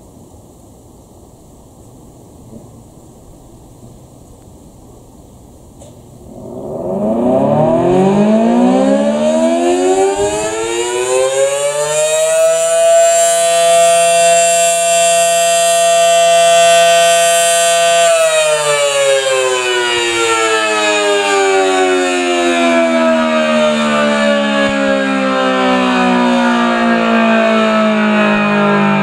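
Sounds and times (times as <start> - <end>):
warning siren wailing: 6.2 - 29.0.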